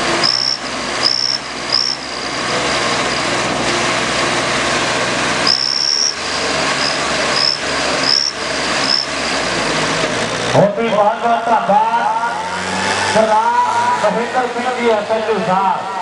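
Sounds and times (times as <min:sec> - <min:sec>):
diesel tractor engines roaring: 0:00.0 - 0:16.0
shrill whistle blasts: 0:00.2 - 0:02.4, 0:05.5 - 0:06.2, 0:06.8 - 0:09.1.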